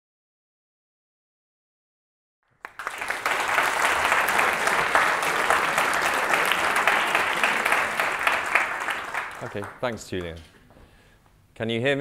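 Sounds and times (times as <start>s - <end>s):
audience applauding: 2.5s - 10.4s.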